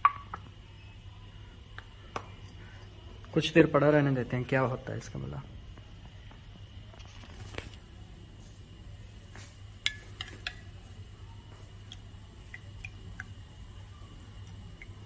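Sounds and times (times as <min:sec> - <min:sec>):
spoon clinking against glass: 0:09.9 - 0:10.7.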